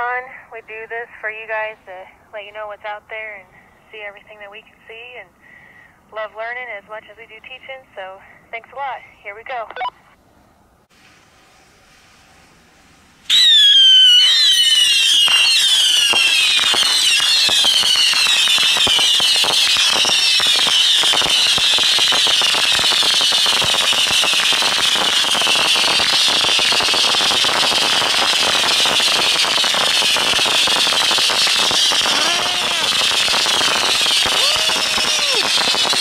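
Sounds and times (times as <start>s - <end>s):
rockets whistling: 13.3s - 36.0s.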